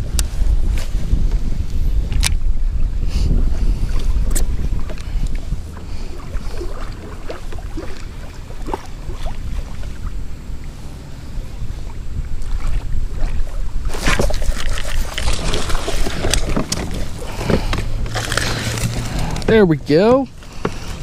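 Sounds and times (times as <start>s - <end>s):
wind buffeting microphone: 0.0s - 21.0s
water splashing: 3.5s - 21.0s
river water flowing: 3.9s - 21.0s.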